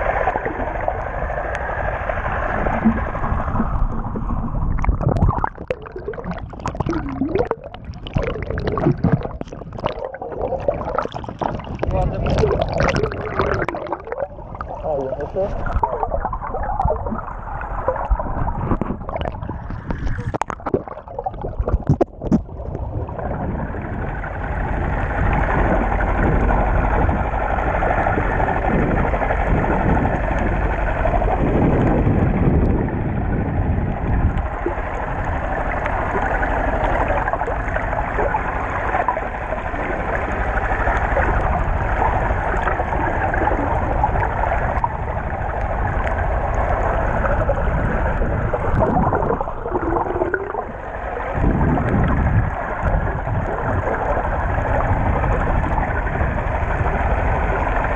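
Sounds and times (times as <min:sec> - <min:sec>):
muffled underwater rush: 0:00.0 - 0:57.9
knocks and splashes: 0:02.6 - 0:17.2, 0:17.8 - 0:22.9.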